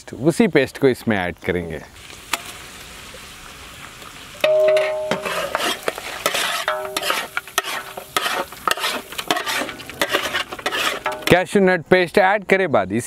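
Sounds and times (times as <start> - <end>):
meat sizzling in oil: 2.0 - 11.3
pot ringing: 4.4 - 5.6, 6.6 - 8.0
metal ladle scraping a pot: 4.5 - 11.4.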